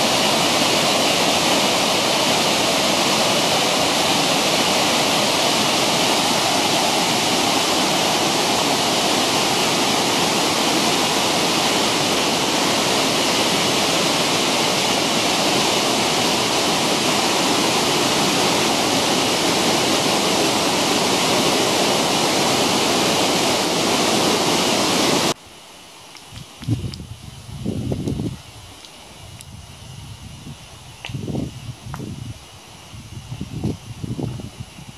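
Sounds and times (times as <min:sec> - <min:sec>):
waterfall roaring: 0:00.0 - 0:25.4.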